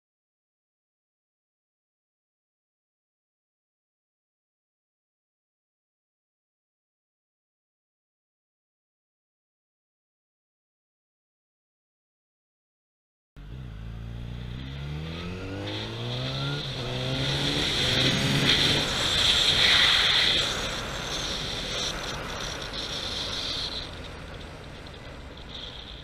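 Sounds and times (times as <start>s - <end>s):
motorcycle engine accelerating: 13.4s - 26.0s
wind rush on microphone: 16.4s - 26.0s.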